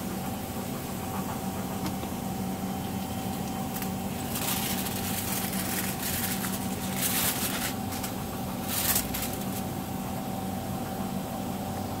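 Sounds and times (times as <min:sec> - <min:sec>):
steady machine hum: 0:00.0 - 0:12.0
aluminum foil crinkling: 0:03.6 - 0:09.8.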